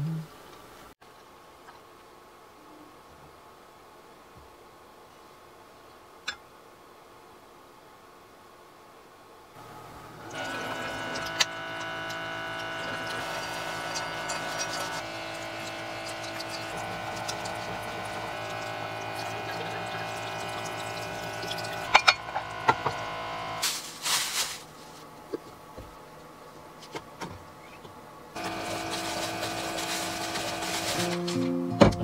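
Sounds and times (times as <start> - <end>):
water running into sink: 9.6 - 23.6, 28.4 - 31.3
electric pump humming: 9.6 - 24.5, 28.2 - 32.0.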